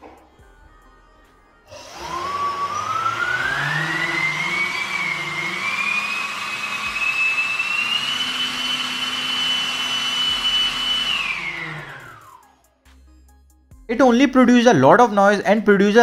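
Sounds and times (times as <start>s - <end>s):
electric ducted fan whine: 1.7s - 12.5s.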